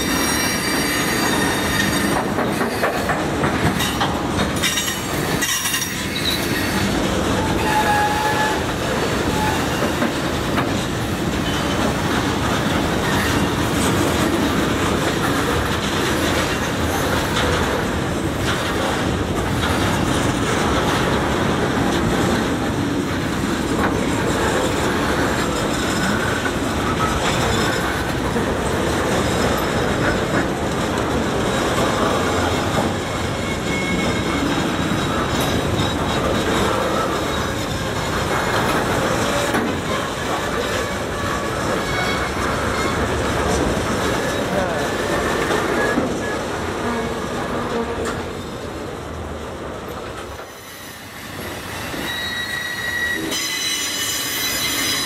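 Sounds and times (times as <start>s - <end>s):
wheel squeals: 0.0s - 3.1s, 4.6s - 10.2s, 32.0s - 43.6s, 44.2s - 48.7s, 50.4s - 55.0s
train wheels rumbling and clacking: 0.0s - 55.0s.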